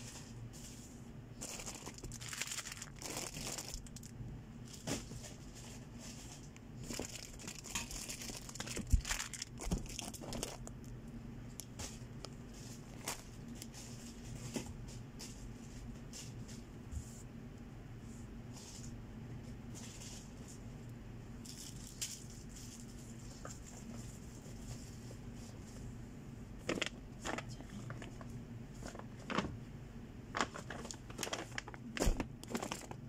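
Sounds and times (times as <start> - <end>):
plastic packaging crinkling: 1.4 - 11.0, 12.5 - 14.3, 26.6 - 29.6, 30.3 - 33.0
cardboard rustling: 30.3 - 33.0.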